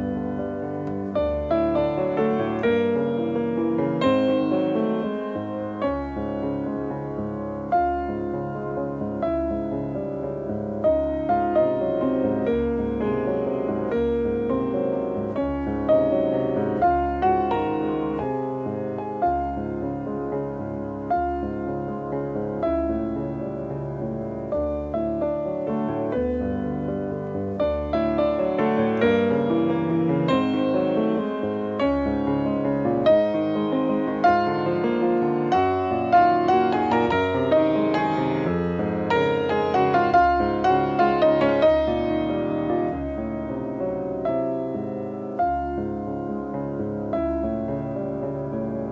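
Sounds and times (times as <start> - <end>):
slow piano music: 0.0 - 48.9.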